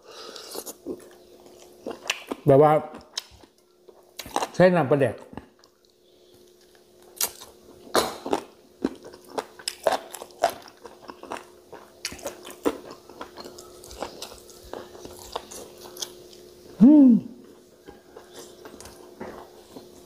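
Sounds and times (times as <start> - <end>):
wet chewing and lip-smacking: 5.4 - 16.5.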